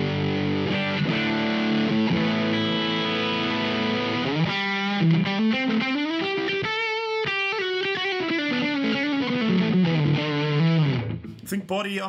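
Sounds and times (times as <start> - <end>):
overdriven electric guitar phrase: 0.0 - 12.0.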